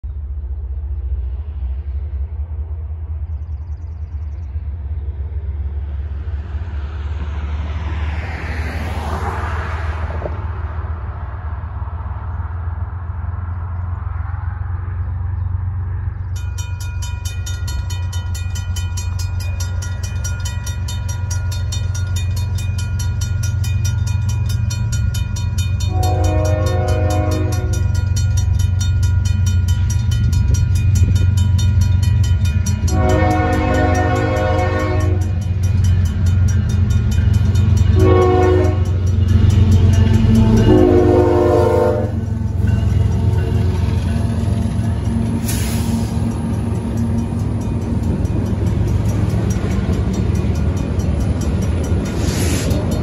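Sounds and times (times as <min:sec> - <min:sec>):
train low rumble: 0:00.0 - 0:53.0
crossing bell ringing: 0:16.0 - 0:53.0
locomotive horn blasts: 0:25.8 - 0:28.0, 0:32.8 - 0:35.4, 0:37.6 - 0:43.6.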